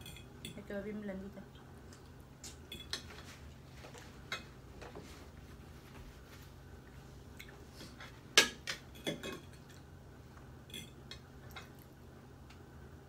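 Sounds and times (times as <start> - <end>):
cutlery clinking on plates: 2.6 - 3.3, 8.4 - 9.8, 10.7 - 11.2.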